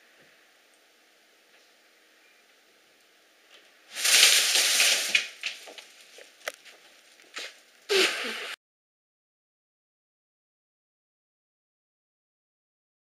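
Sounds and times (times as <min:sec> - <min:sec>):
fabric tunnel crinkling: 0:03.9 - 0:08.4.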